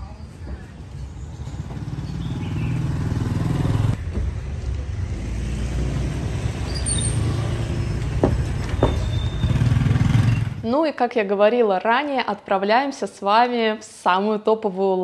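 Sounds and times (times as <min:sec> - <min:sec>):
road traffic engines rumbling: 0:00.0 - 0:10.7.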